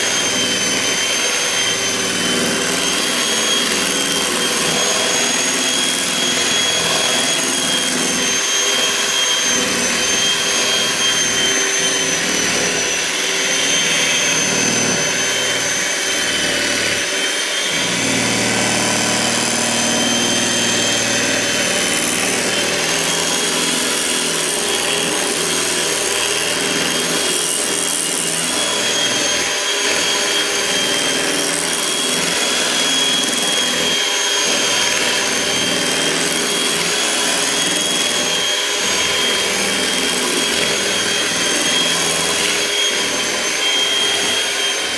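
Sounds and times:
electric mixer motor whining: 0.0s - 44.9s.

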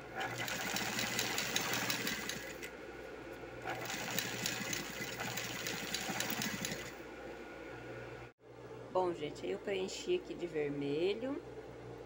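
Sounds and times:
sewing machine stitching: 0.0s - 2.7s, 3.6s - 7.0s.

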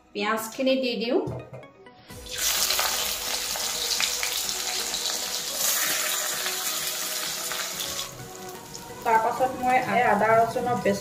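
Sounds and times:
onions sizzling in oil: 2.2s - 10.6s.

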